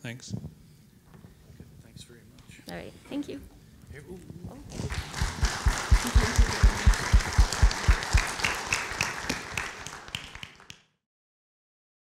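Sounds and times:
audience applauding: 0:04.7 - 0:10.9.

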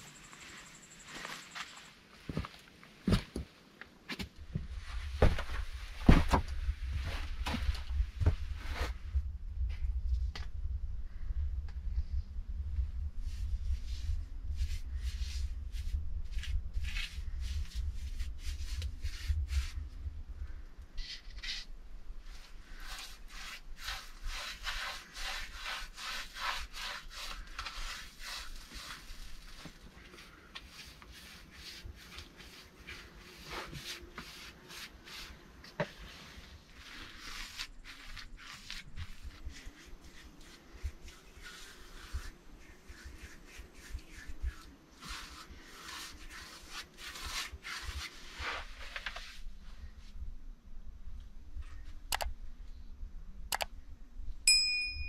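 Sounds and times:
brush scrubbing rough plaster: 0:13.2 - 0:19.9, 0:21.4 - 0:49.5.

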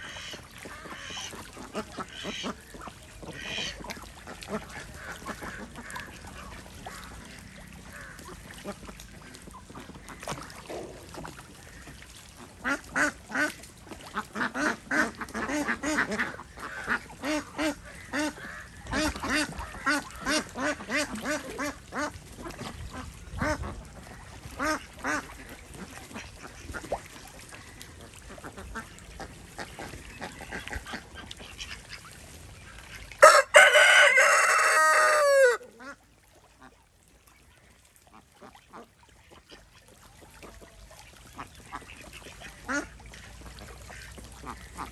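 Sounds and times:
ducks quacking: 0:00.0 - 0:36.8, 0:37.4 - 0:44.9
water splashing: 0:00.0 - 0:44.9
rooster crowing: 0:33.2 - 0:35.6.

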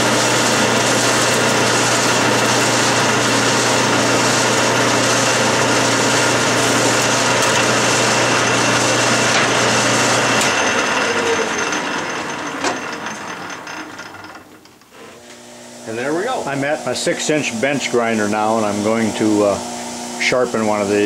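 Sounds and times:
lathe chuck spinning down: 0:00.0 - 0:15.0
tool cutting steel: 0:00.0 - 0:15.4
metal lathe motor hum: 0:00.0 - 0:21.0.

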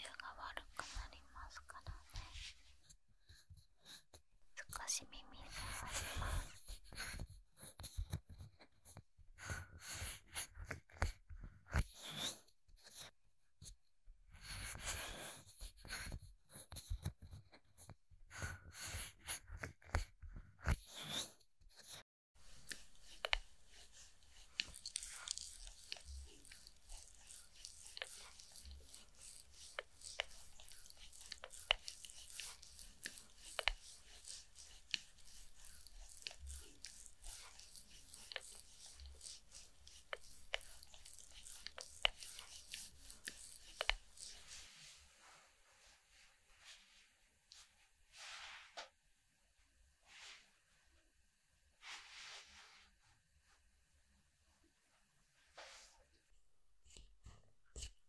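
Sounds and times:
fingers rubbing mannequin ear: 0:18.9 - 0:44.8
metal facial roller rolling: 0:24.2 - 0:44.5.

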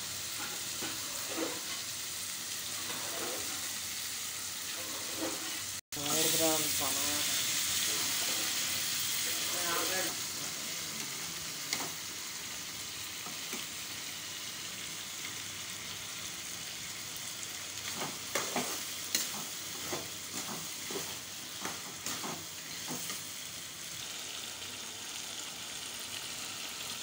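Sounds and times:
chicken sizzling in a pan: 0:00.0 - 0:27.0
metal spatula scraping pan: 0:00.4 - 0:01.8, 0:02.7 - 0:03.7, 0:04.7 - 0:05.7, 0:07.8 - 0:08.8.

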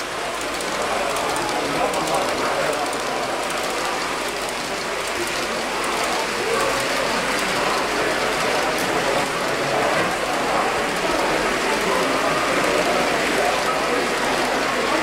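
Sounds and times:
model trains rattling on track: 0:00.0 - 0:15.0.

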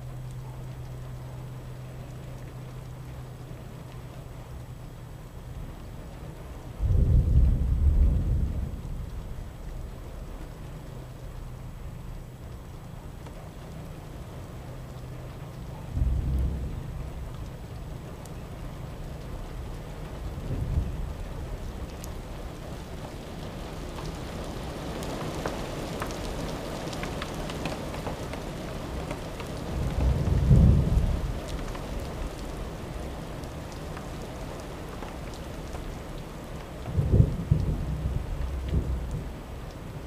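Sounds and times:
steady rain: 0:00.0 - 0:40.0
rolling thunder rumbles: 0:05.4 - 0:13.0, 0:15.1 - 0:27.5, 0:28.8 - 0:34.0, 0:36.7 - 0:40.0.

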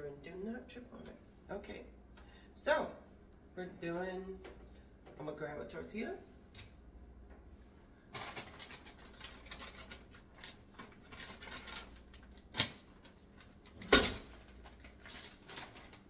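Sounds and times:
plastic bag crinkling: 0:08.1 - 0:16.0.

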